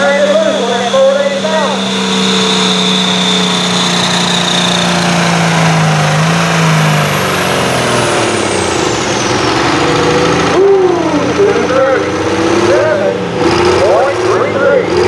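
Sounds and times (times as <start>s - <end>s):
high whine falling in pitch: 0.0s - 12.0s
tractor diesel engine under load: 0.0s - 15.0s.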